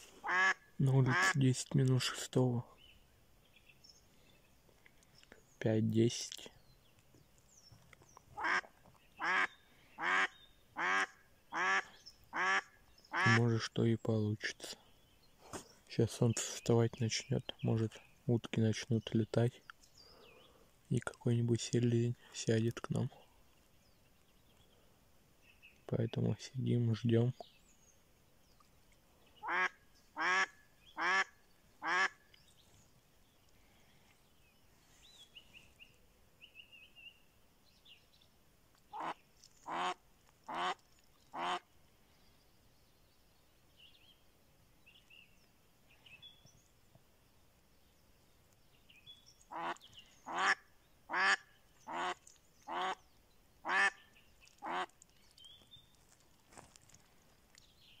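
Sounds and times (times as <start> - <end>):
duck quacking: 0.2 - 1.4, 8.4 - 13.4, 29.4 - 32.2, 38.9 - 41.6, 49.5 - 53.0, 53.6 - 54.0, 54.6 - 54.9
faint small-bird chirps: 22.1 - 26.4, 27.0 - 39.8, 40.5 - 58.0.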